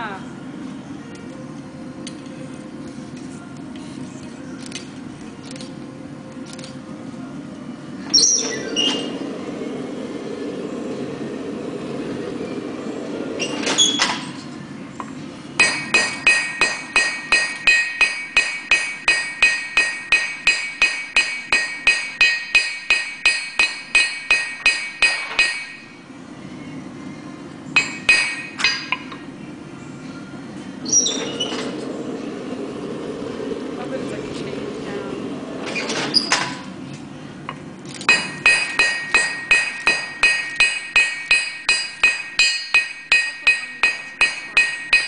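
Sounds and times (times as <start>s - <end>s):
low rushing noise: 9.0s - 13.5s, 31.6s - 35.7s
metallic clanks: 13.4s - 25.9s, 27.8s - 29.3s, 37.5s - 45.0s
hammer striking steel on anvil: 15.6s - 26.0s, 27.8s - 29.2s, 38.1s - 45.0s.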